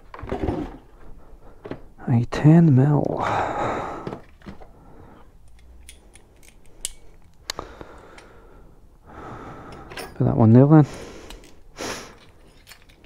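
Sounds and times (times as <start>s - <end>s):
metal tools clicking and clinking: 5.4s - 7.4s, 9.8s - 10.3s, 11.3s - 13.0s.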